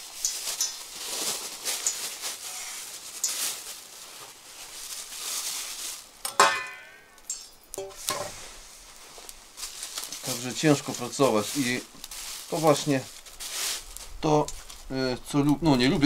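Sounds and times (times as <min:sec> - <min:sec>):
utensils clinking and scraping pans: 0:00.0 - 0:01.0, 0:06.2 - 0:08.4
light crackling hiss: 0:00.0 - 0:16.0.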